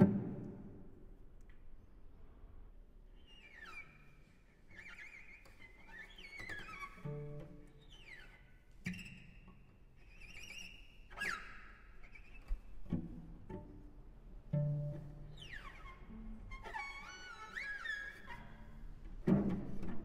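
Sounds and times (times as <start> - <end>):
cello harmonics glissandi: 3.2 - 20.0.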